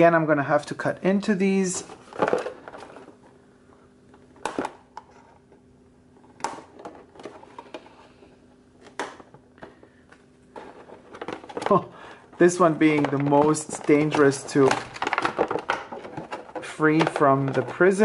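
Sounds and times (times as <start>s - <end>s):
plastic tray rustling: 1.8s - 3.4s, 6.2s - 18.0s.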